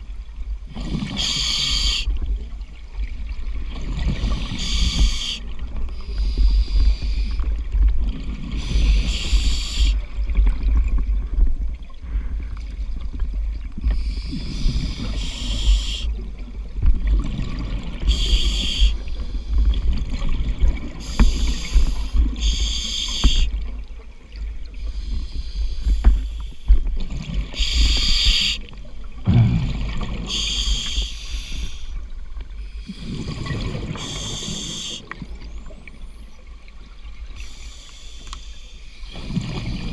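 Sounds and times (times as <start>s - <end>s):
exhaled bubbles hissing: 0.7s - 2.3s, 3.7s - 10.4s, 13.8s - 16.3s, 17.2s - 23.7s, 24.6s - 35.8s, 37.2s - 39.9s
diver breathing underwater: 0.8s - 2.1s, 4.1s - 7.5s, 8.6s - 10.0s, 13.9s - 16.2s, 18.0s - 19.7s, 21.0s - 23.6s, 24.8s - 26.8s, 27.5s - 28.7s, 29.3s - 35.2s
low underwater rumble: 2.1s - 22.7s, 23.5s - 34.1s.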